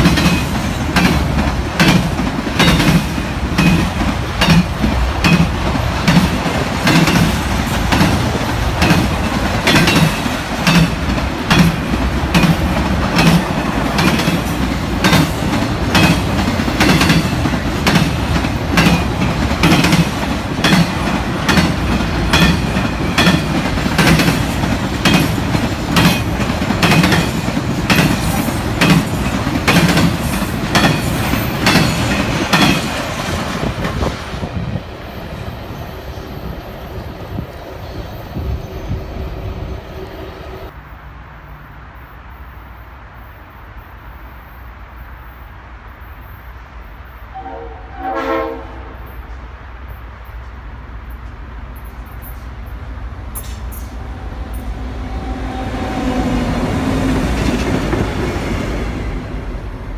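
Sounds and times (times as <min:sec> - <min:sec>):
freight train wheels clacking on rails: 0:00.0 - 0:38.5, 0:53.3 - 0:59.5.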